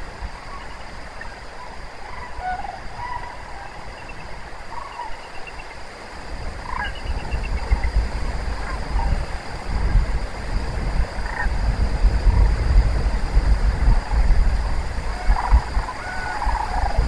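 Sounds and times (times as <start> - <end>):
cranes calling: 0.0 - 5.8, 6.6 - 7.9, 15.0 - 17.0.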